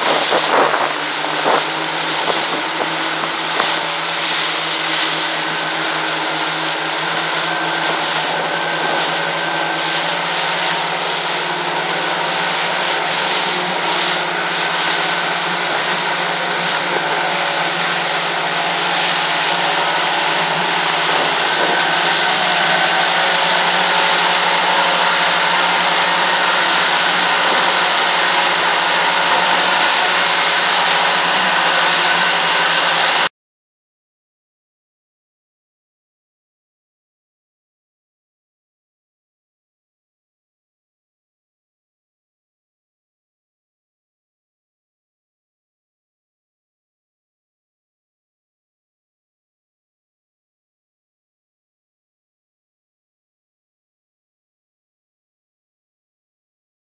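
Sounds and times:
motorboat engine drone: 0:00.0 - 0:33.3
water rushing: 0:00.0 - 0:33.3.

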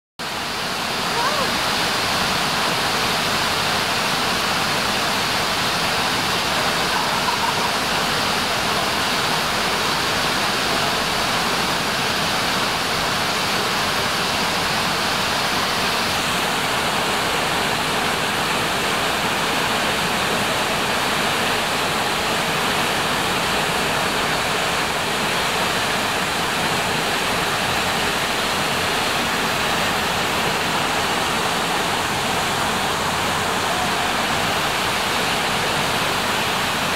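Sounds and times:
waterfalls rushing: 0:00.2 - 0:36.9.

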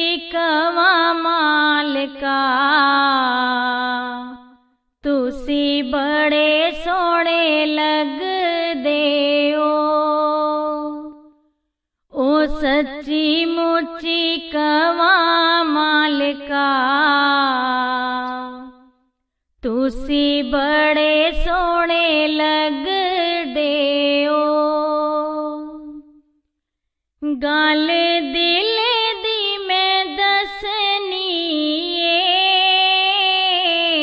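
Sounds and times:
person singing unaccompanied: 0:12.1 - 0:18.8, 0:27.2 - 0:34.0.

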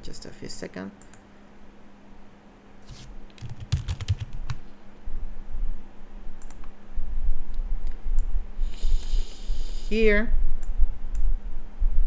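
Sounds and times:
keyboard and mouse clicks: 0:02.9 - 0:04.6, 0:06.4 - 0:06.7.

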